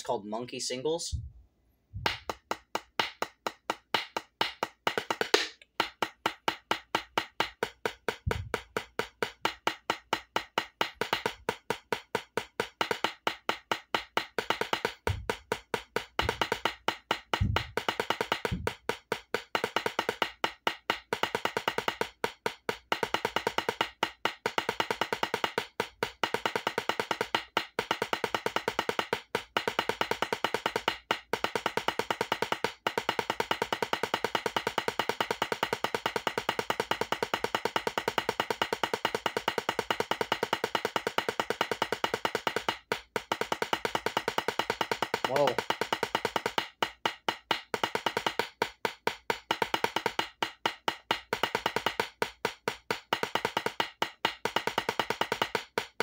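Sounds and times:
dull low thumps: 0:01.1 - 0:02.3, 0:08.2 - 0:08.6, 0:15.1 - 0:15.3, 0:17.4 - 0:17.8, 0:18.5 - 0:18.7
drumsticks tapping on practice pad: 0:02.0 - 0:56.0.

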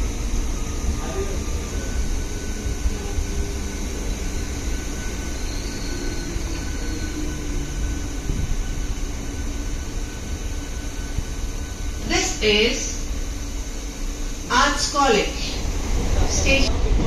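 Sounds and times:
train wheels rumbling: 0:00.0 - 0:17.0.

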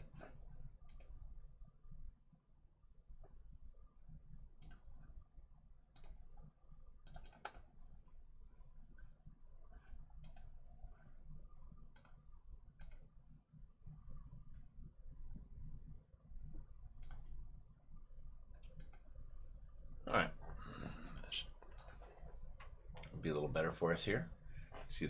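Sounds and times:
quiet room hum: 0:00.0 - 0:25.0
faint sharp clicks: 0:04.6 - 0:04.9, 0:12.8 - 0:13.1, 0:17.0 - 0:17.3, 0:18.6 - 0:19.1, 0:21.6 - 0:23.2.

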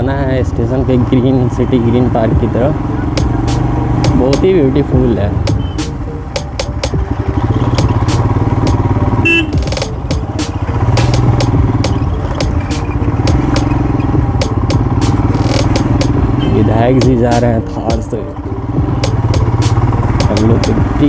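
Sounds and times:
motorcycle engine running: 0:00.0 - 0:21.0
short beep: 0:05.6 - 0:06.0.

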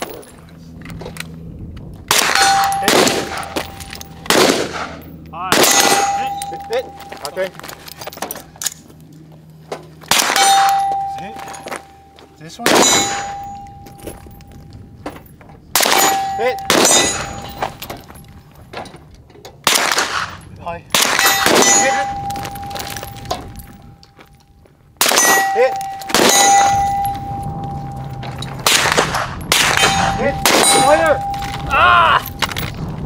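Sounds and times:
rifle shots: 0:02.1 - 0:06.5, 0:10.1 - 0:11.6, 0:12.6 - 0:13.7, 0:15.7 - 0:17.6, 0:19.6 - 0:22.9, 0:25.0 - 0:27.3, 0:28.1 - 0:31.6
steel target ringing: 0:02.1 - 0:07.6, 0:10.1 - 0:14.6, 0:15.8 - 0:18.2, 0:20.3 - 0:24.0, 0:25.0 - 0:32.6.

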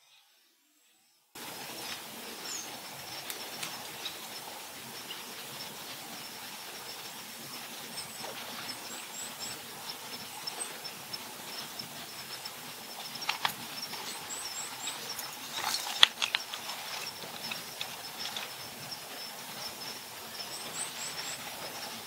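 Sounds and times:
steady high-pitched pulsing: 0:01.4 - 0:22.0
kingfisher calling harsh notes: 0:11.6 - 0:22.0.

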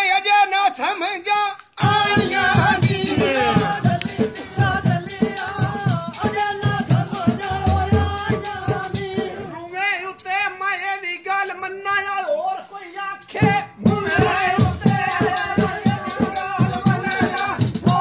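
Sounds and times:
fast percussion strokes with rattling: 0:01.6 - 0:09.6, 0:13.8 - 0:18.0.

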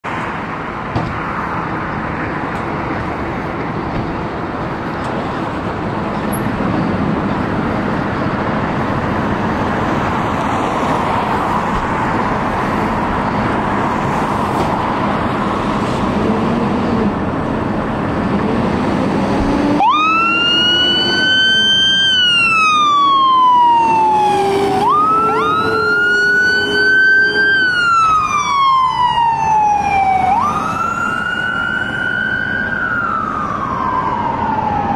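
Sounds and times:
diesel truck engines running: 0:00.0 - 0:34.9
electronic siren wailing: 0:19.7 - 0:34.9.

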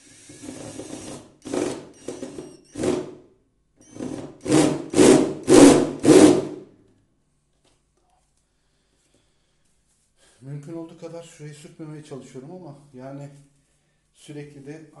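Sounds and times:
cordless drill driving a screw: 0:00.0 - 0:03.1, 0:03.8 - 0:06.4.

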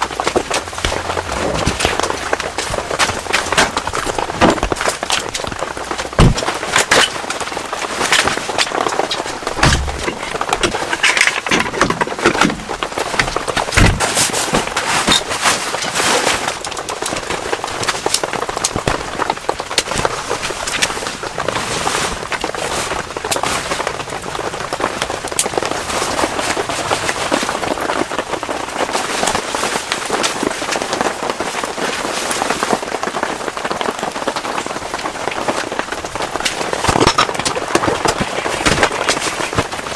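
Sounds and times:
rain pattering on tent fabric: 0:00.0 - 0:39.9
dull thumps: 0:06.1 - 0:06.6, 0:09.4 - 0:14.2.

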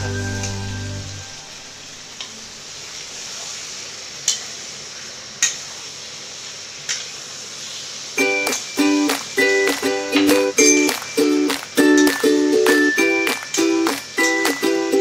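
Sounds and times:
background music: 0:00.0 - 0:01.6, 0:08.2 - 0:15.0
food sizzling in a pan: 0:00.0 - 0:15.0.

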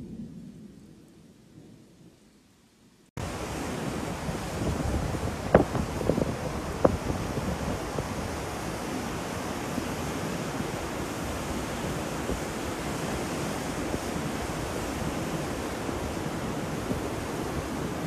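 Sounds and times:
rushing water: 0:03.2 - 0:18.0
wind roaring: 0:03.2 - 0:18.0.

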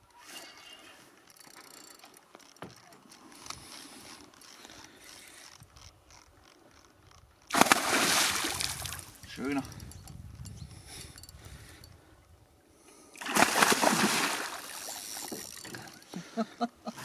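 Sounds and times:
fishing reel gears ticking: 0:01.2 - 0:07.5, 0:09.6 - 0:12.0, 0:14.8 - 0:16.1
fish splashing at surface: 0:07.5 - 0:09.0, 0:13.2 - 0:15.6.

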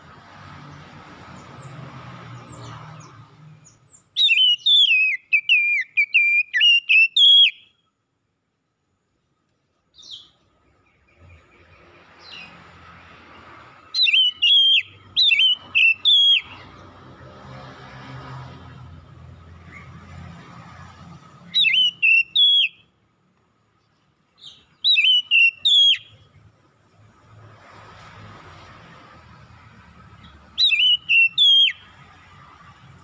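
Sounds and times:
bird singing whistled phrases: 0:04.2 - 0:07.8, 0:14.0 - 0:16.6, 0:21.5 - 0:22.9, 0:24.4 - 0:26.3, 0:30.6 - 0:31.9.

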